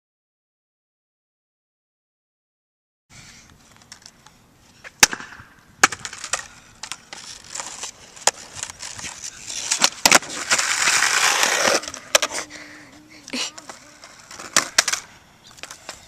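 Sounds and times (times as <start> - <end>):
skateboard wheels rolling: 3.5 - 16.0
skateboard knocking on street: 5.0 - 12.5, 13.3 - 16.0
skateboard pop and clatter: 5.0 - 12.5, 13.5 - 16.0
skateboard scraping on asphalt: 5.8 - 16.0.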